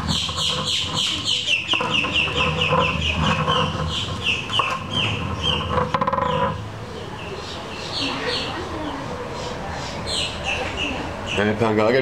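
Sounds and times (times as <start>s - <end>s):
bird chirping: 0.0s - 11.6s.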